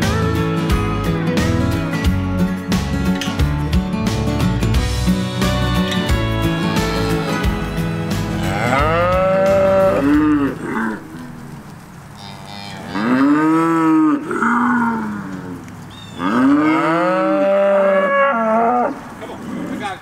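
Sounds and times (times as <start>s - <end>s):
cattle mooing: 5.4s - 11.5s, 12.2s - 20.0s.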